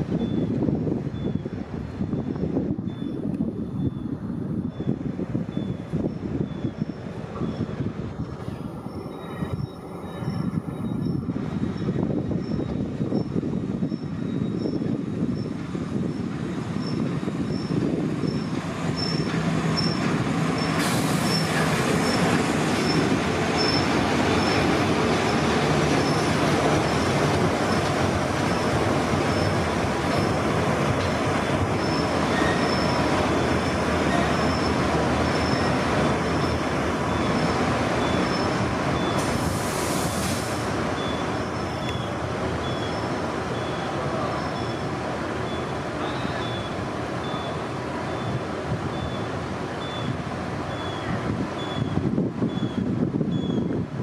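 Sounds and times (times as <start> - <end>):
train wheels rumbling on rail: 0.0 - 54.0
hiss bursts: 20.6 - 22.0, 38.5 - 41.4.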